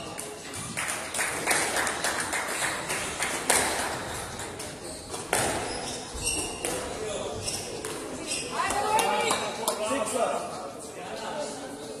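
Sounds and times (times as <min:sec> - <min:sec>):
squash ball struck by rackets: 0:05.1 - 0:05.8.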